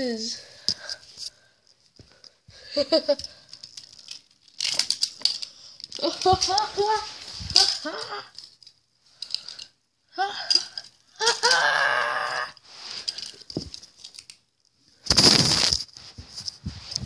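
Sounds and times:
rustling noise: 3.0s - 8.7s, 12.6s - 17.0s
child making wordless sounds: 6.0s - 8.4s.

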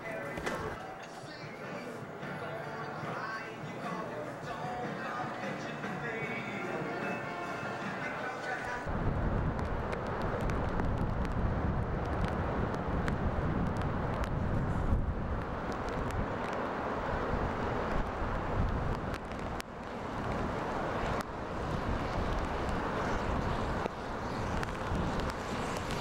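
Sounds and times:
wind buffeting microphone: 8.8s - 26.0s
tyres hissing on wet road: 12.0s - 26.0s.

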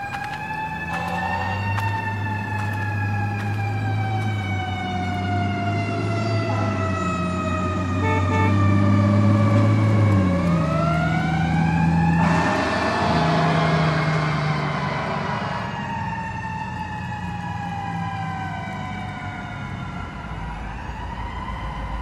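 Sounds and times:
siren wailing: 0.0s - 22.0s
burst of noise: 12.2s - 16.2s.

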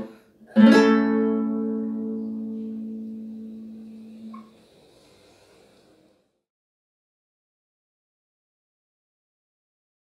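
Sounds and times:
classical guitar chord ringing: 0.5s - 4.5s.

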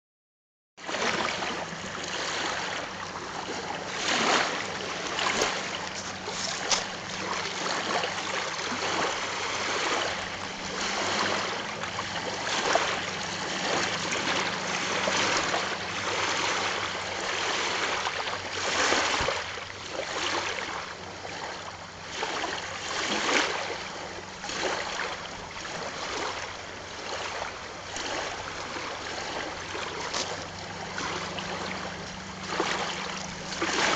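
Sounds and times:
choppy water rushing: 0.8s - 33.9s
waves lapping on stony shore: 0.8s - 33.9s.

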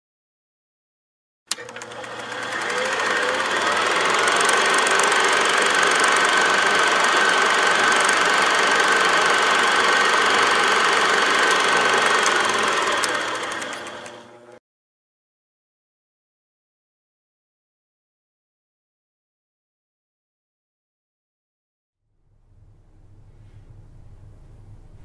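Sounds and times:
small machine whirring: 1.5s - 14.6s.

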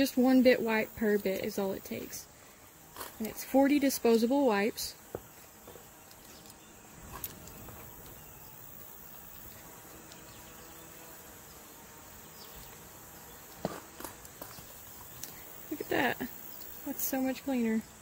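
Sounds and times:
insects chirring: 0.0s - 18.0s.

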